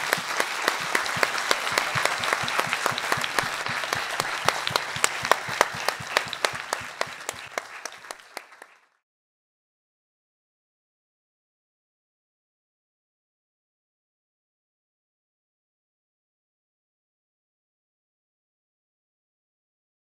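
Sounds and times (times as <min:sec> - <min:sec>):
audience applauding: 0:00.0 - 0:09.0
close loud hand claps: 0:00.0 - 0:09.0.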